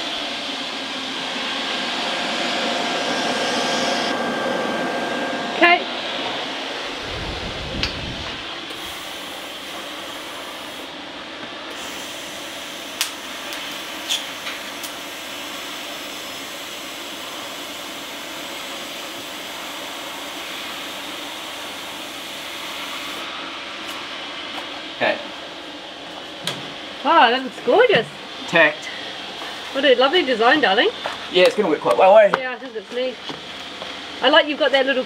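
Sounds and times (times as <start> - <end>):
welding arc hissing: 6.8 - 10.9, 11.7 - 23.3.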